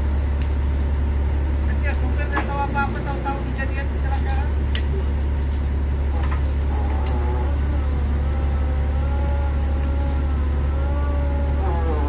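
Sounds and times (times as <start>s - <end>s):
crane engine droning: 0.0s - 12.0s
wavering multi-tone whine: 4.0s - 12.0s.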